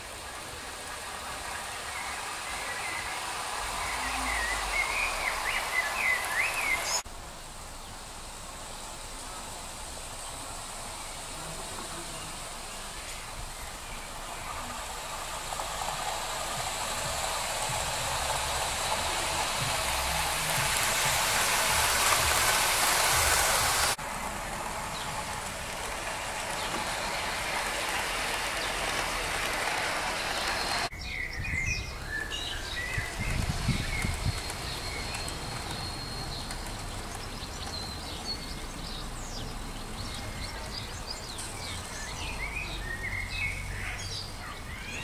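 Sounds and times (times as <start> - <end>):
birds chirping: 0.0 - 7.1, 24.6 - 45.0
model train wheels on rail: 0.0 - 45.0.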